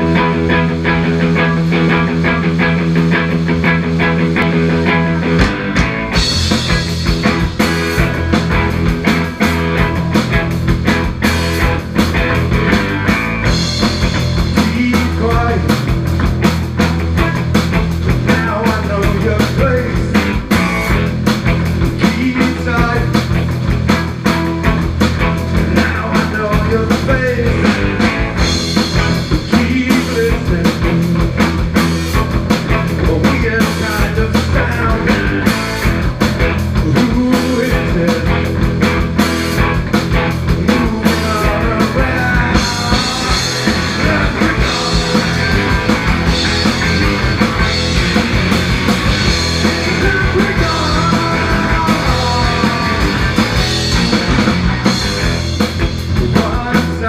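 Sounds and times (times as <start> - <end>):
drums and cymbals: 0.0 - 57.0
rock band playing: 0.0 - 57.0
man singing: 14.5 - 15.9, 18.2 - 20.6, 21.9 - 23.4, 25.4 - 28.2, 29.0 - 31.4, 32.9 - 35.6, 36.8 - 38.7, 40.5 - 45.8, 49.5 - 53.6, 56.1 - 57.0.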